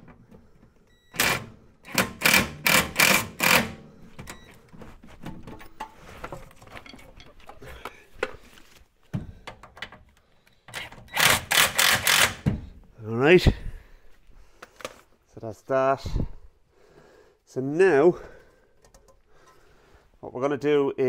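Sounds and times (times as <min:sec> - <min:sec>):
impact tool hammering bursts: 0:01.1 - 0:03.9, 0:11.1 - 0:12.7.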